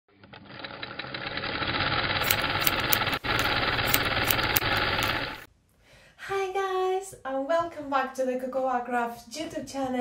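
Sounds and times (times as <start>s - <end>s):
sewing machine stitching rattle: 0.3s - 5.5s
sharp clicks: 2.2s - 5.5s.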